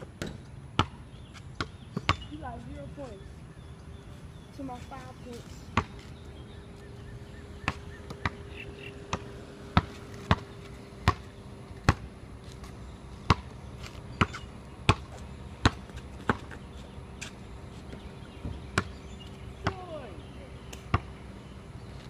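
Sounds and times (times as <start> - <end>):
basketball bouncing on concrete: 0.0 - 2.7, 5.7 - 6.2, 7.6 - 19.0, 19.6 - 20.0, 20.7 - 21.2.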